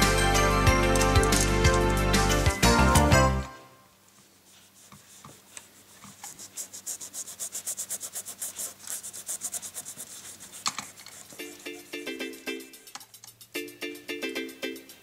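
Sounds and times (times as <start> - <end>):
background music: 0.0 - 3.9, 11.4 - 15.0
cloth rubbing on metal: 4.1 - 12.1.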